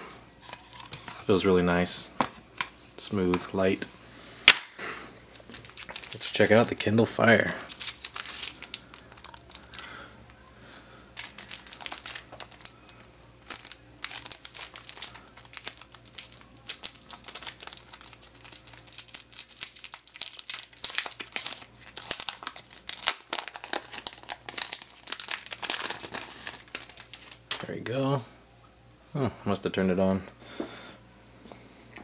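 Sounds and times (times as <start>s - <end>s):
plastic sleeve crinkling: 5.3s - 10.0s, 11.2s - 27.8s.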